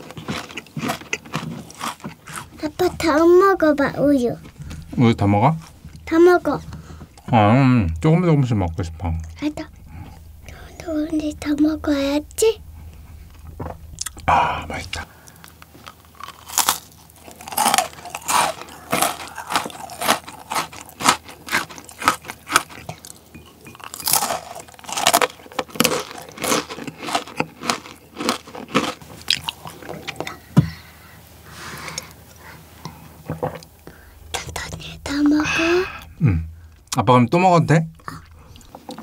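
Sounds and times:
crunching and chewing biscuits: 0:00.0 - 0:05.2, 0:15.4 - 0:30.5
loud low thump: 0:02.2 - 0:15.8, 0:33.7 - 0:37.0
person drinking: 0:17.9 - 0:20.3.

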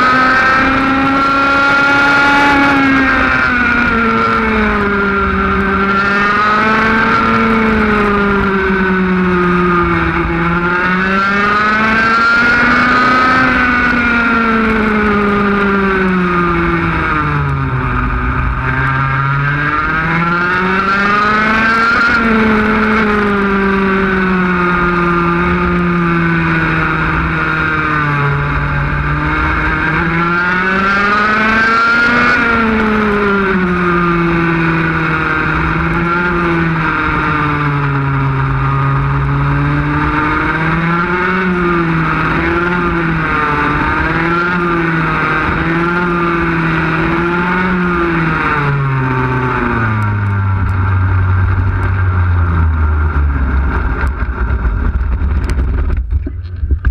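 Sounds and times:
racing kart engine: 0:00.0 - 0:56.9.

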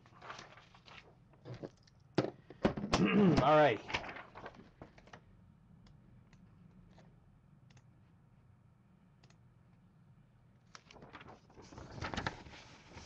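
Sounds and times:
low room hum: 0:00.0 - 0:13.0
faint clicks: 0:09.2 - 0:09.4.

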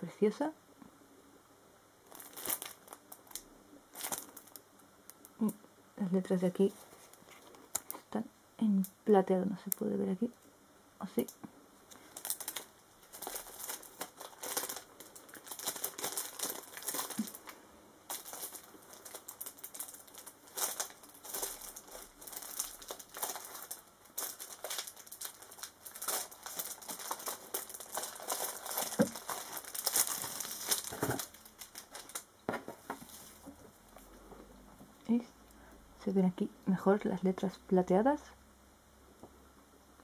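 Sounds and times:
plastic packaging crinkling: 0:02.0 - 0:05.6, 0:11.2 - 0:34.0.

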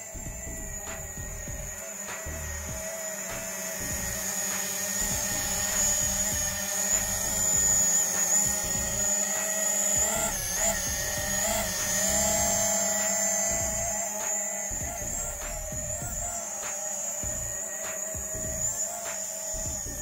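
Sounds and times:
drone motors whining: 0:00.0 - 0:20.0
background music: 0:09.9 - 0:17.5.

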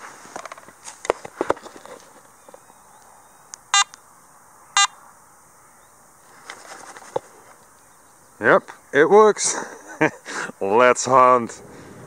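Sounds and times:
metal detector beeps: 0:03.8 - 0:04.0, 0:04.8 - 0:05.0.

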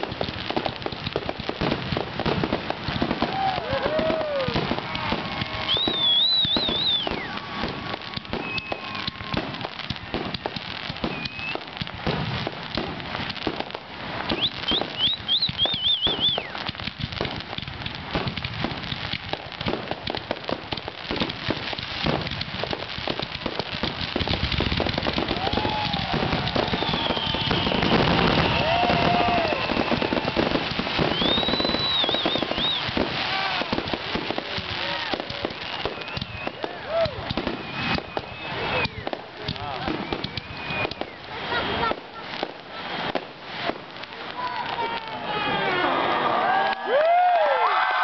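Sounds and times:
fireworks crackling and popping: 0:00.0 - 0:48.0.

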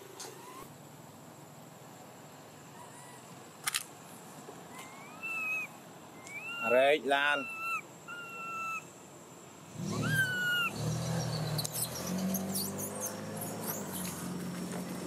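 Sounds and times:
baby monkey crying: 0:00.3 - 0:00.7, 0:04.7 - 0:08.9, 0:09.8 - 0:10.8.

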